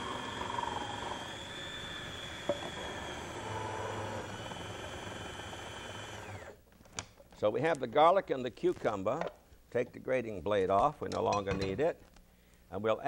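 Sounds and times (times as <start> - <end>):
food processor motor whining: 0.0 - 6.6.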